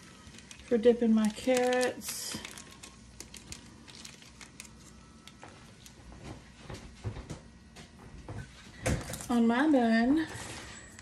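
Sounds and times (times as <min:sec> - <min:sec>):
plastic packet crinkling: 0:00.0 - 0:06.0.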